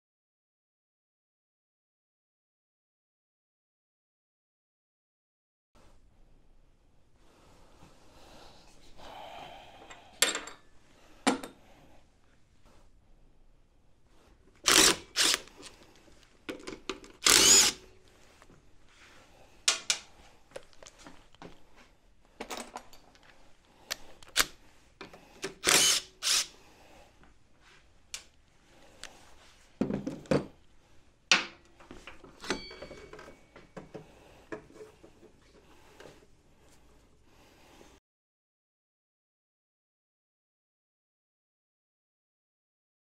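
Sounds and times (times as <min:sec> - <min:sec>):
power driver bursts: 0:17.2 - 0:17.8, 0:25.6 - 0:26.5.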